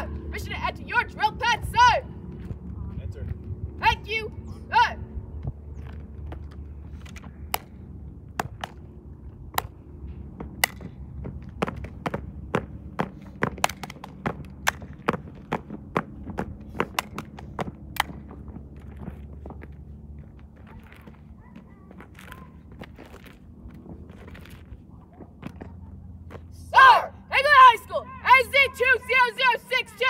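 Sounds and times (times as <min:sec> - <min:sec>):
shoes stomping on asphalt: 0:09.5 - 0:26.5.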